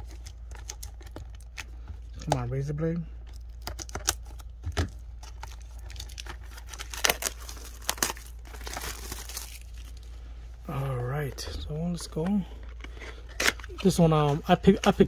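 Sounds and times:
wrapping crinkling and tearing: 0:00.0 - 0:10.3.

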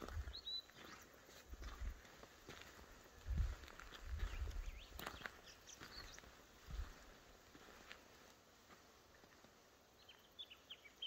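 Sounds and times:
faint high chirp: 0:00.2 - 0:01.1.

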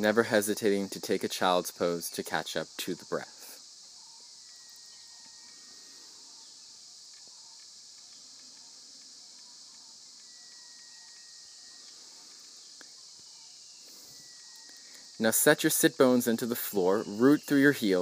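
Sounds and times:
insect chorus: 0:00.0 - 0:18.0.

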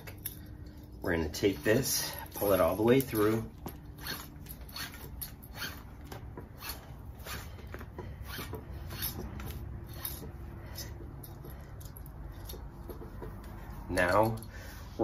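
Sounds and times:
rope rubbing through pulley: 0:03.9 - 0:10.3.

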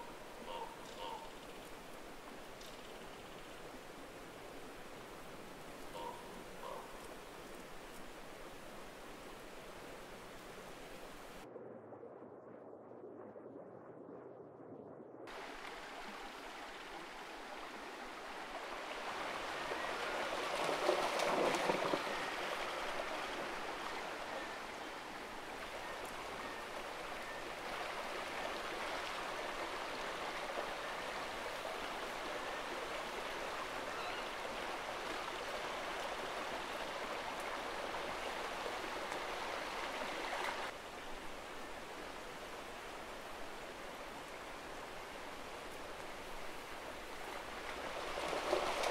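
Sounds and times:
river water rippling over rocks: 0:00.0 - 0:11.4, 0:15.3 - 0:48.9.

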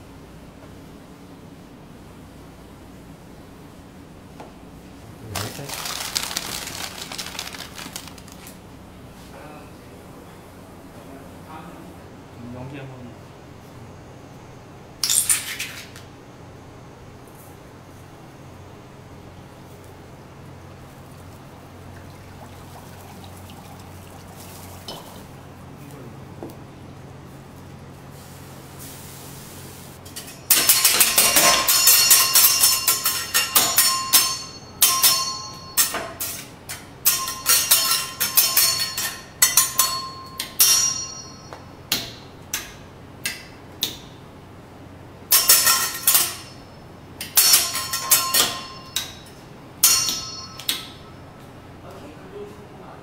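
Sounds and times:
metal spatulas clanging together: 0:30.1 - 0:36.4, 0:37.0 - 0:41.4, 0:45.3 - 0:46.6, 0:47.2 - 0:49.2, 0:49.8 - 0:50.8.

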